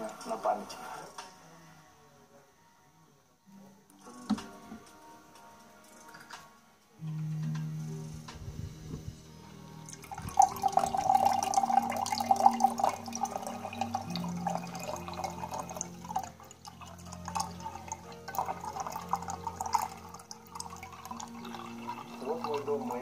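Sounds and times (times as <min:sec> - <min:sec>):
tea pouring into glass pitcher: 0:09.6 - 0:23.0.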